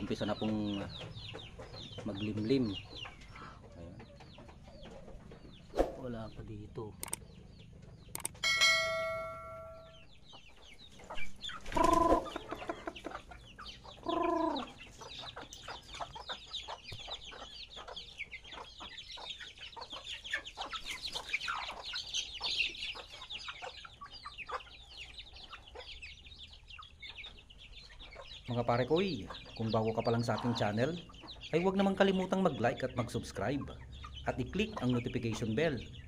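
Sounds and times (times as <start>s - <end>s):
chicks peeping: 0.0s - 36.0s
hens clucking: 0.0s - 36.0s
loud fowl calls: 11.1s - 15.0s, 29.2s - 35.5s.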